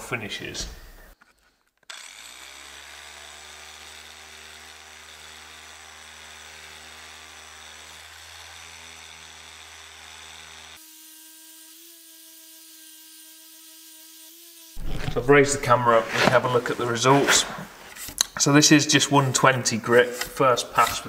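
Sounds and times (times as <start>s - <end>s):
sander whirring: 1.9s - 5.3s, 7.7s - 18.4s.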